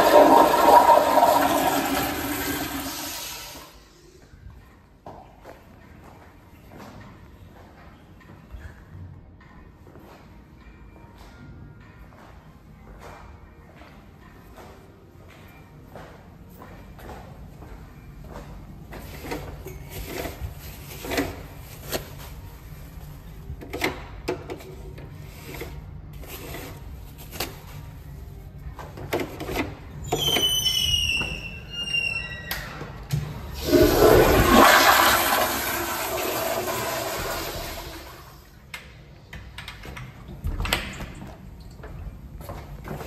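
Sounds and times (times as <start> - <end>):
toilet flushing: 0.0 - 3.8, 33.5 - 38.5
high falling squeaky tones: 30.1 - 32.8.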